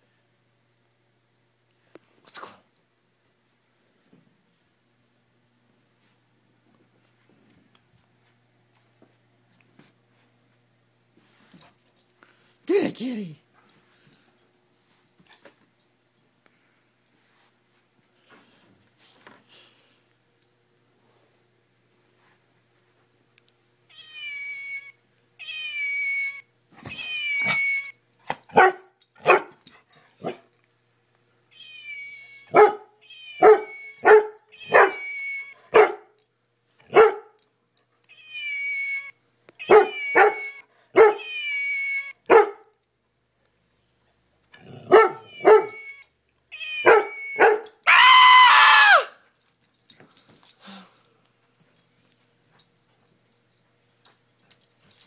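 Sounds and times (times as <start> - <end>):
dog yipping and barking: 27.0 - 27.9, 28.5 - 29.5, 32.5 - 36.1, 36.9 - 37.3, 39.6 - 41.4, 42.0 - 42.7, 44.8 - 46.0, 46.6 - 49.0.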